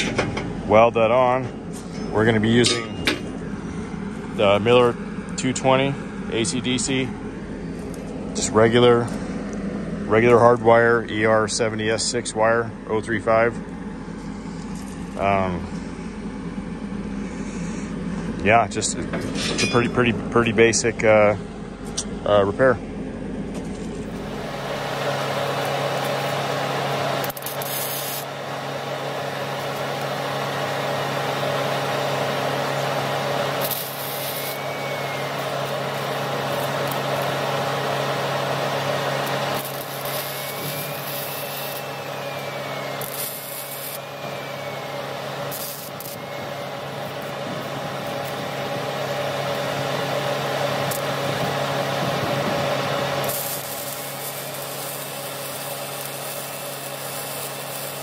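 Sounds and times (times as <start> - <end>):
welding arc crackling sizzle: 23.8 - 58.0.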